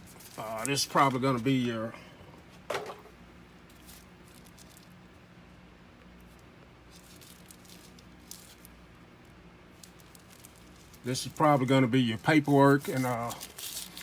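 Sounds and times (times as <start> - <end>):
paper rustling and crinkling: 0.0 - 1.6, 6.9 - 8.8, 9.8 - 14.0
handling sound: 0.0 - 5.0, 9.7 - 14.0
low steady hum: 0.0 - 14.0.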